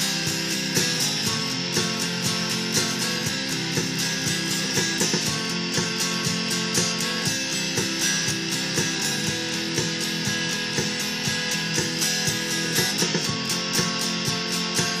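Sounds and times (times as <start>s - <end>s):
electric guitar strumming: 0.0s - 15.0s.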